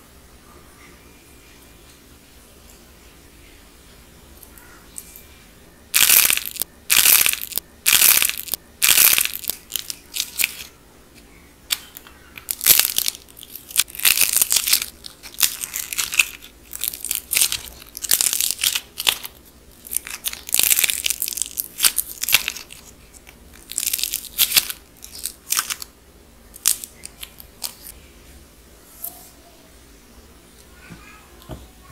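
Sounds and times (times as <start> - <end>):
dried clay crackling and crunching: 5.9 - 25.9, 26.5 - 28.0.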